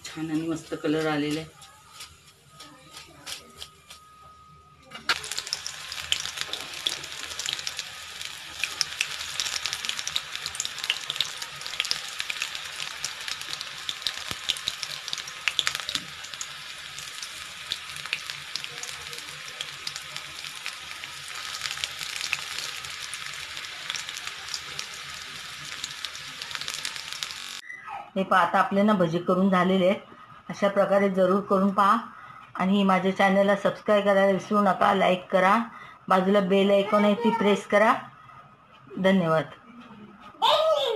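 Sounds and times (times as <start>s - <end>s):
fritters sizzling in hot oil: 5.0s - 27.6s.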